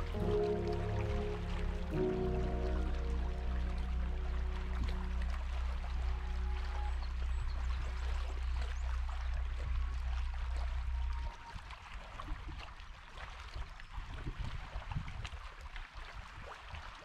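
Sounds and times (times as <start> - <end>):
low steady hum: 0.0 - 12.5
water trickling and lapping: 0.0 - 17.0.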